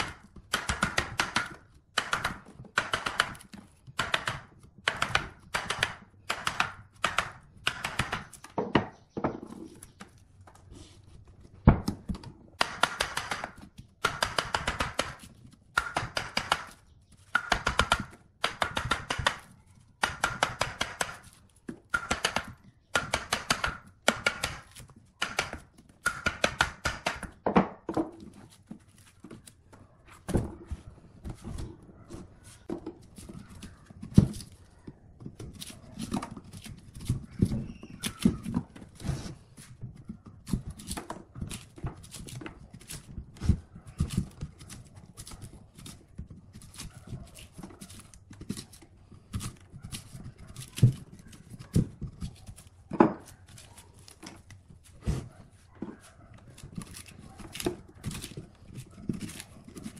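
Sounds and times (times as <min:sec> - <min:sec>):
bark scraping: 0:28.5 - 0:41.4, 0:42.2 - 0:59.9.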